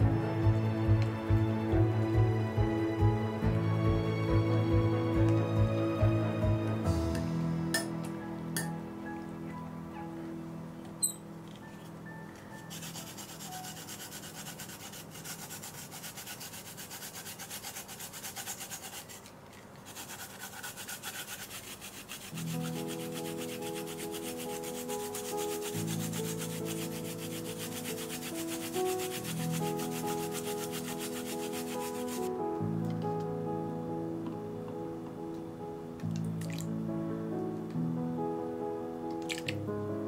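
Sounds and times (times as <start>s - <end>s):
soft background music: 0.0s - 18.2s, 21.2s - 40.0s
ginger rasping on grater: 12.6s - 32.3s.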